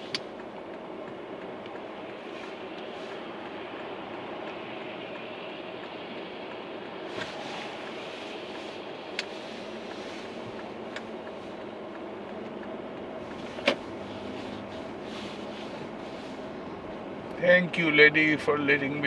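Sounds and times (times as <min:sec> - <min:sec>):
car road and engine noise: 0:00.0 - 0:19.0.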